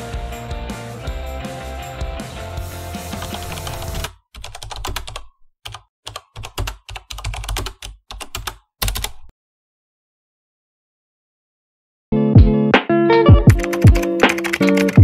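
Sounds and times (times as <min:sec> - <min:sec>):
background music: 0:00.0 - 0:04.1, 0:12.2 - 0:15.0
rapid keyboard clicking: 0:03.0 - 0:09.3, 0:13.5 - 0:15.0.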